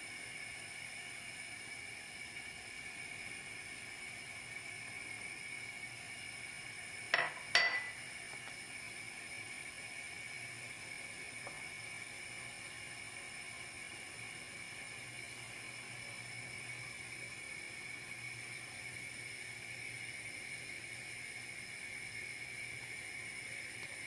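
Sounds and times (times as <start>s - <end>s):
thin high whine: 7.1s - 8.4s
kitchenware clinks: 7.2s - 8.0s.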